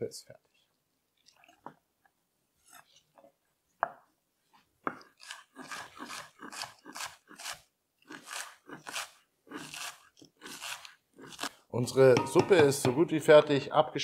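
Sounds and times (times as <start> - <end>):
knife slicing snow peas on board: 4.9 - 11.6.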